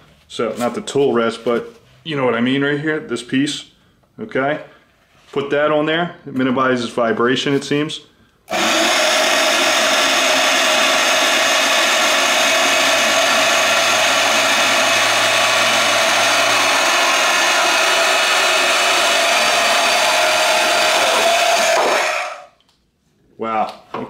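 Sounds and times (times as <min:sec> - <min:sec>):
band saw cutting wood: 0:08.5 - 0:22.5
band saw whine: 0:08.5 - 0:22.5.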